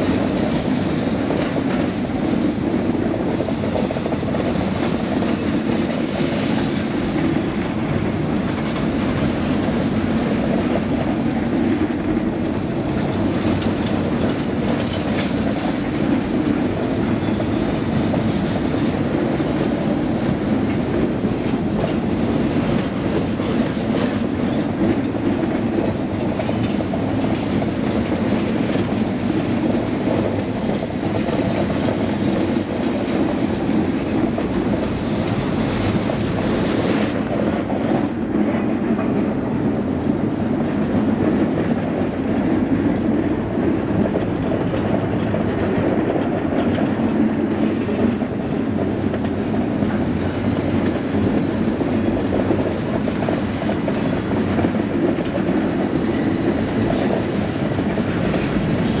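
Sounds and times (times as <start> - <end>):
freight train wheels rumbling on rails: 0.0 - 59.0.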